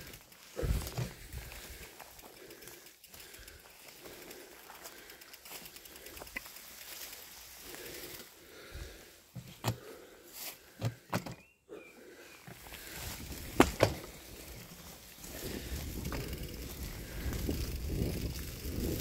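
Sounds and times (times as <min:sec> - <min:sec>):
bike knocking and rattling: 0:00.0 - 0:08.1, 0:09.3 - 0:10.0, 0:10.7 - 0:11.5, 0:12.4 - 0:19.0
bicycle tyres crunching on dirt: 0:00.0 - 0:11.1, 0:12.0 - 0:19.0.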